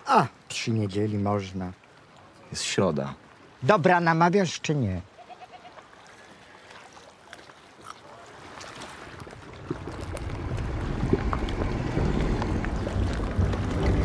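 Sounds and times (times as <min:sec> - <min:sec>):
low rumbling: 0:09.3 - 0:14.0.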